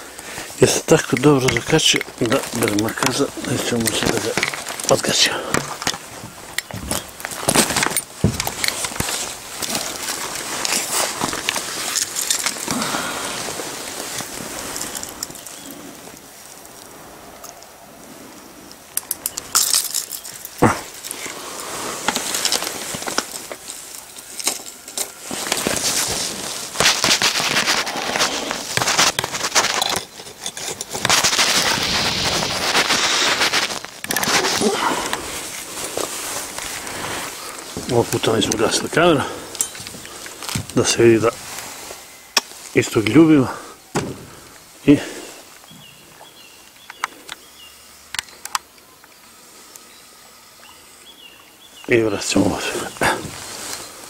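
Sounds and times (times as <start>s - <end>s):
handling rustling and clicks: 0.6s - 17.7s, 18.7s - 43.4s.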